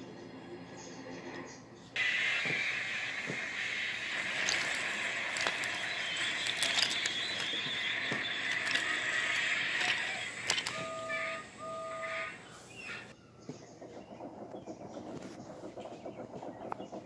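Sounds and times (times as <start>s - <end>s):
toy trains rolling on wooden track: 2.0s - 12.1s
steady hiss: 2.0s - 13.0s.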